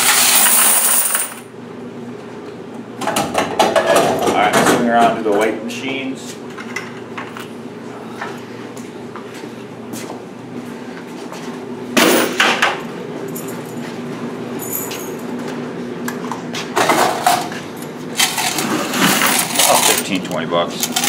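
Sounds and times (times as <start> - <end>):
metal coin tray clanking: 0.0 - 1.4, 18.2 - 20.2, 20.8 - 21.0
steady low hum: 0.4 - 21.0.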